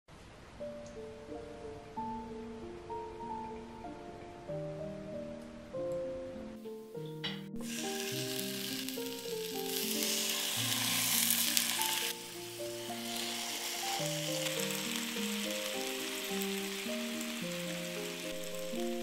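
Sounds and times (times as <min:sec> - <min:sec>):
gentle background music: 0:00.1 - 0:19.0
chicken sizzling in frying pan: 0:07.6 - 0:19.0.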